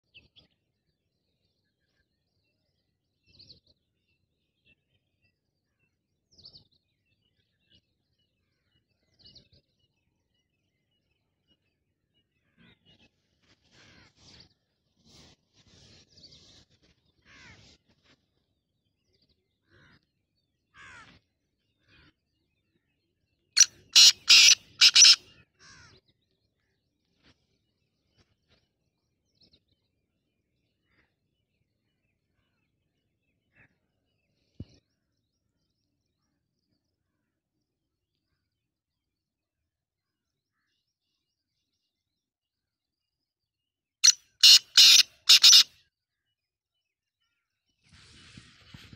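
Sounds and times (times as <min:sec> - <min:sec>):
faint bird chirps: 0:23.5 - 0:26.0, 0:44.0 - 0:46.4
bird harsh grating call: 0:23.6 - 0:25.9, 0:44.0 - 0:45.7.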